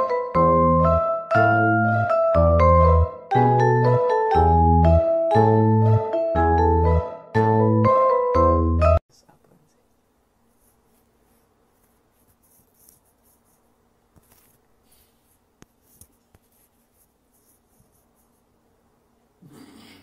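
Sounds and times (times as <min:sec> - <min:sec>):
light scratchy rustles: 0:10.5 - 0:18.5.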